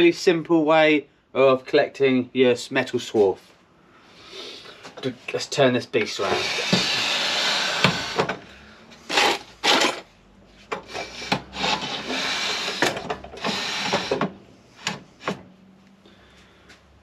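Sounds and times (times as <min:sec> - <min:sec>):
saw base scraping across bench: 0:06.1 - 0:08.2, 0:10.8 - 0:14.2.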